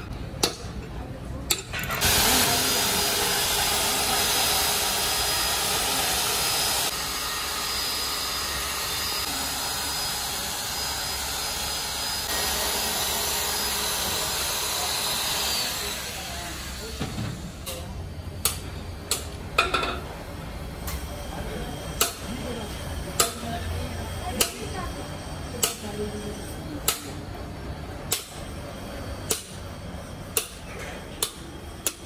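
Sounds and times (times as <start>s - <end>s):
drill brush scouring metal: 2.0s - 17.0s.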